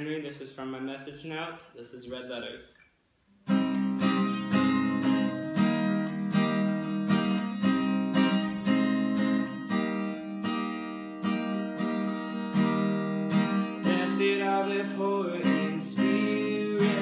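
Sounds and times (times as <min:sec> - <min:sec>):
acoustic guitar strumming: 0:03.4 - 0:17.0.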